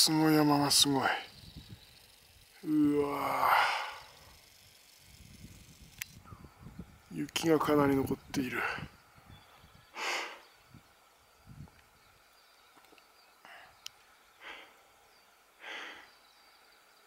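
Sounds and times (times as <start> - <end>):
person breathing close to microphone: 9.9 - 10.4, 15.6 - 16.1.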